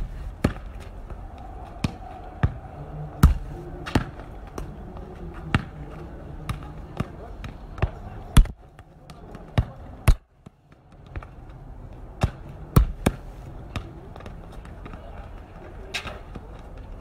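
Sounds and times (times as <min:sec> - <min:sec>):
football kicks thudding: 0:03.2 - 0:04.2, 0:06.5 - 0:10.2, 0:12.2 - 0:13.9.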